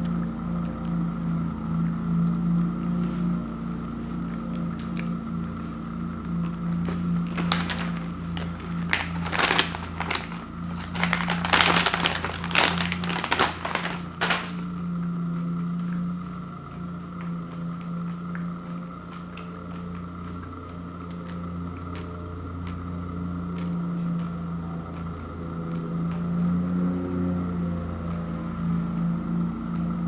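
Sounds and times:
steady low hum: 0:00.0 - 0:30.0
plastic bag crinkling: 0:06.8 - 0:14.8.

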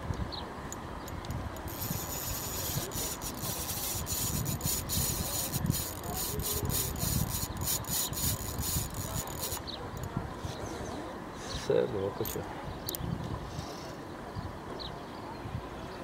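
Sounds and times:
fishing reel clicking: 0:01.6 - 0:10.1.

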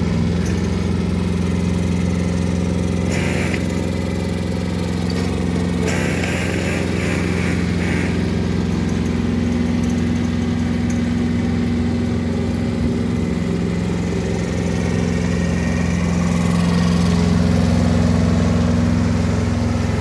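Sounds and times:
ride-on mower engine running: 0:00.0 - 0:20.0.

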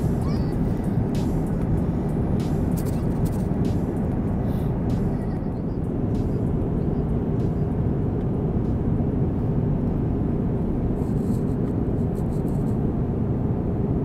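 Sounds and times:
airplane cabin engine rumble: 0:00.0 - 0:14.0.

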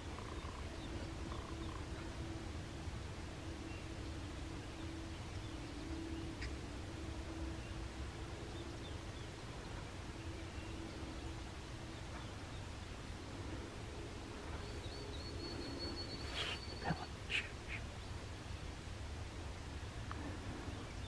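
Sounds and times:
faint bird chirps: 0:00.0 - 0:02.3, 0:14.5 - 0:18.2
soft hum: 0:00.0 - 0:21.0.

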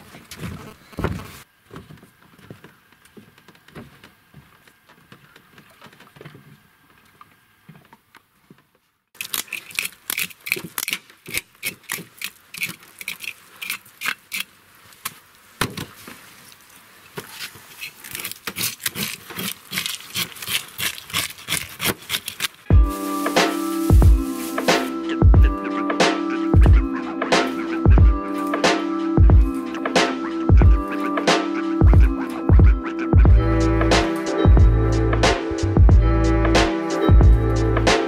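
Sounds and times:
knife scraping fish scales: 0:09.2 - 0:14.5, 0:17.2 - 0:25.0.

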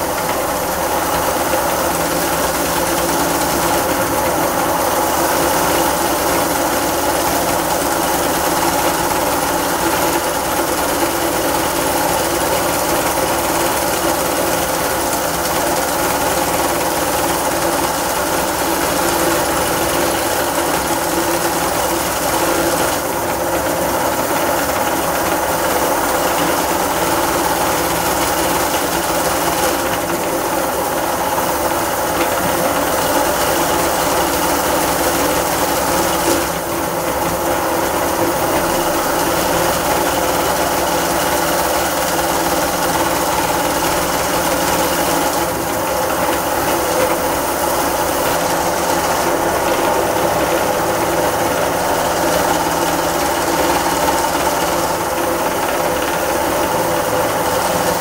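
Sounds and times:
meat grinder running: 0:00.0 - 0:58.0.

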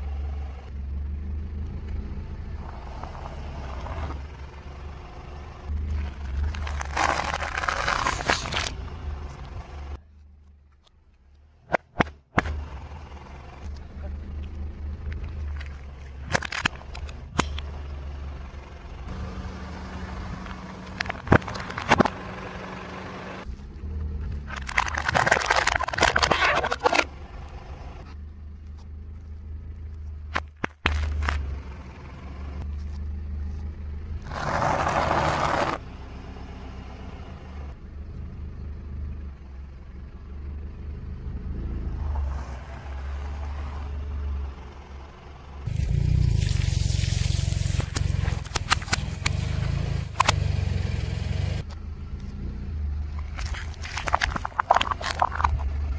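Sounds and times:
car engine humming: 0:00.0 - 0:55.9
plastic cups cracking: 0:06.4 - 0:08.7, 0:24.5 - 0:27.1, 0:53.2 - 0:55.8
bag of snacks crunching: 0:06.5 - 0:08.7, 0:24.5 - 0:27.0, 0:53.3 - 0:55.7
tomatoes squashing: 0:24.5 - 0:27.1, 0:53.2 - 0:55.9.

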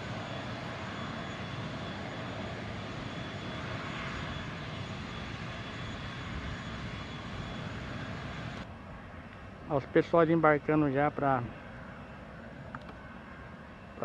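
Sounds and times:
jet turbine rushing: 0:00.0 - 0:08.6.

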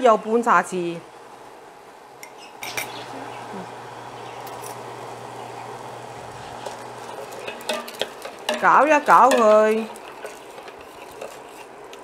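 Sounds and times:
induction cooktop hum with fan: 0:00.0 - 0:12.0
spoon knocking in pot: 0:07.4 - 0:10.9.

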